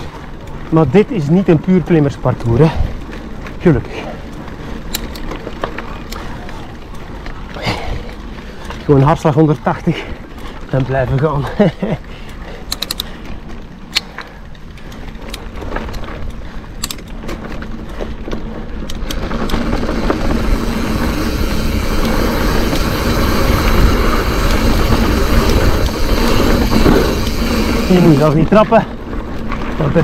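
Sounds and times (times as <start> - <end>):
tyre noise on dirt trail: 0.0 - 30.0
wind noise: 11.4 - 30.0.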